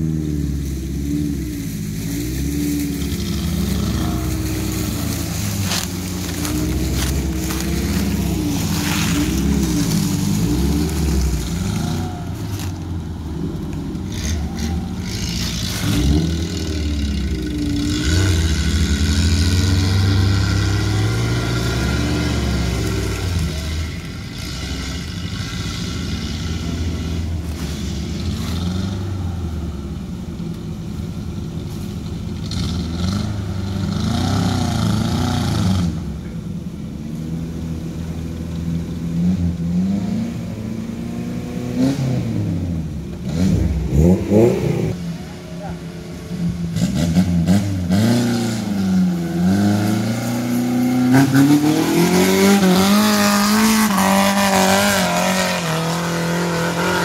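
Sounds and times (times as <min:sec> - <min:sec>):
off-road vehicle engine revving: 0:00.0 - 0:57.0.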